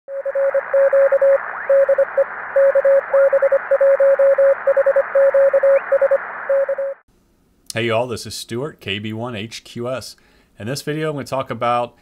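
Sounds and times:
morse code tone: 0.1 - 7.0
radio static: 0.1 - 7.0.

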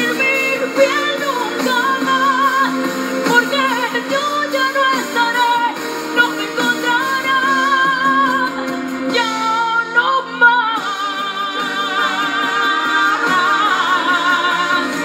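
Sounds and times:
band playing pop ballad: 0.0 - 15.0
woman singing with vibrato: 0.0 - 15.0.

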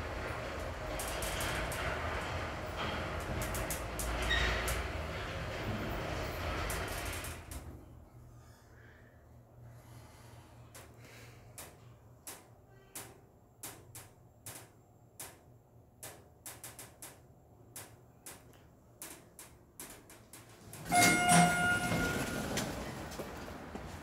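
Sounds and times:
elevator doors sliding open: 0.0 - 8.0, 17.8 - 24.0
sharp clicks: 16.0 - 20.5.

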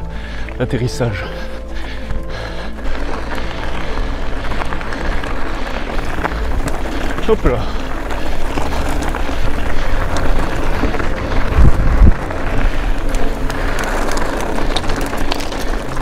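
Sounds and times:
bike tyres crunching on gravel: 0.0 - 16.0
heavy low thumps: 1.4 - 15.0
wind on microphone: 8.0 - 16.0.

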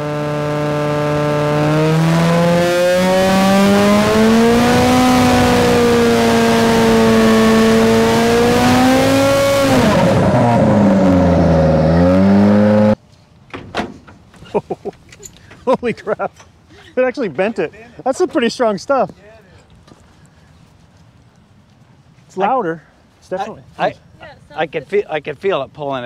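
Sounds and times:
aircraft engine and propeller revving: 0.0 - 13.0.

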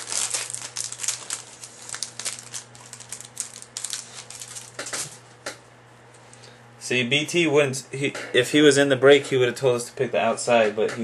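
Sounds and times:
plastic wrapping crinkling: 0.0 - 5.2.

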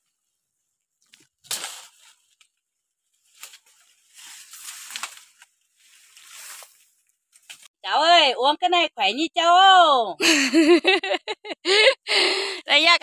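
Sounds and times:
leaves rustling: 0.0 - 7.7.

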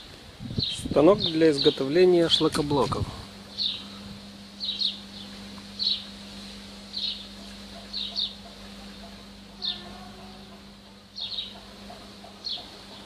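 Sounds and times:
faint low hum: 0.2 - 13.0
bird chirping: 0.6 - 2.5, 3.5 - 4.0, 4.6 - 6.2, 6.8 - 13.0.

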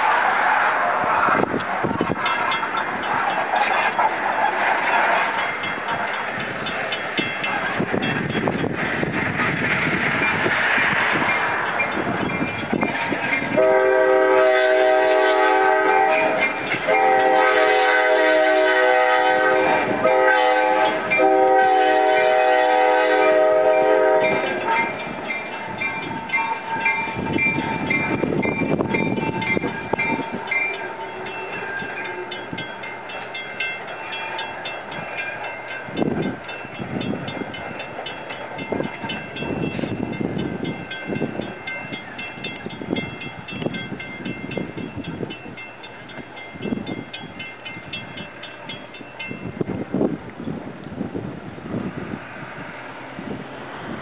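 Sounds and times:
train rumbling past: 0.0 - 54.0
train wheel clicks: 1.3 - 13.6, 16.0 - 17.3, 24.2 - 51.0
crossing bell ringing: 1.3 - 50.6
locomotive air horn blasts: 13.5 - 24.9.

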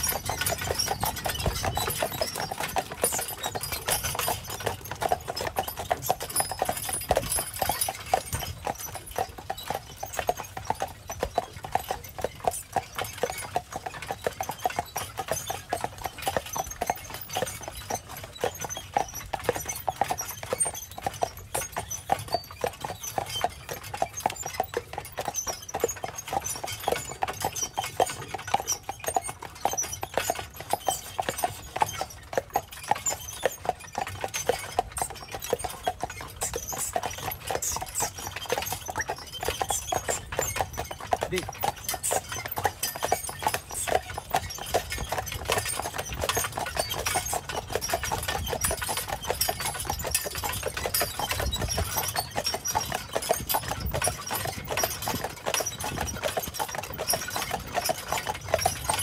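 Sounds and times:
horse hooves on dirt trail: 0.0 - 59.0.

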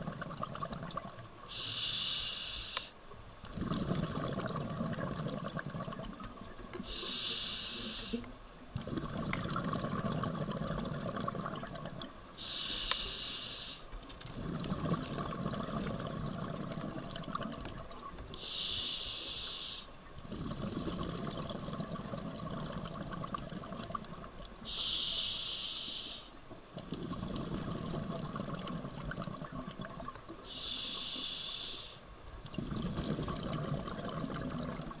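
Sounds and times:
rumbling exhaled bubbles: 0.0 - 1.2, 3.5 - 6.6, 8.7 - 12.1, 14.3 - 18.0, 20.2 - 24.6, 26.7 - 30.4, 32.4 - 35.0
regulator hissing inhales: 1.5 - 3.0, 6.8 - 8.3, 12.4 - 13.9, 18.4 - 19.9, 24.6 - 26.4, 30.4 - 32.1.

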